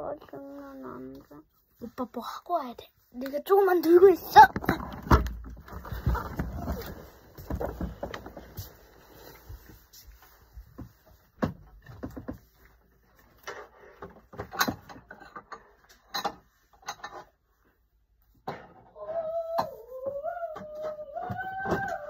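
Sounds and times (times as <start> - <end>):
toys knocking and clattering: 3.7 - 8.5, 13.5 - 17.4.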